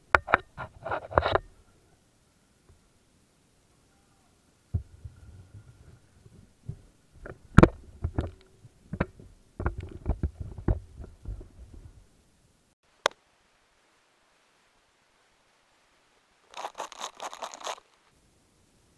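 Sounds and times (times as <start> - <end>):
knocks and bumps of handling: 4.8 - 12.0.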